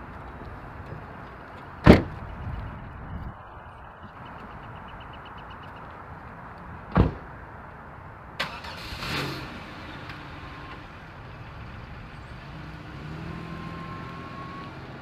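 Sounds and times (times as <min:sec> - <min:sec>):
car door shutting: 0:01.8 - 0:02.2
car engine starting and idling: 0:08.3 - 0:15.0.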